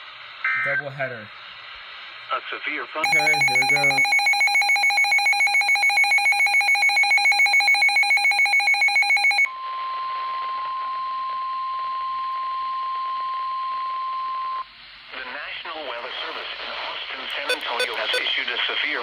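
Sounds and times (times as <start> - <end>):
radio hiss: 0.0 - 4.0, 15.0 - 19.0
fast-pulsing electronic alarm beeps: 3.0 - 9.5, 17.5 - 18.3
steady alarm tone: 3.0 - 9.5, 17.5 - 18.2.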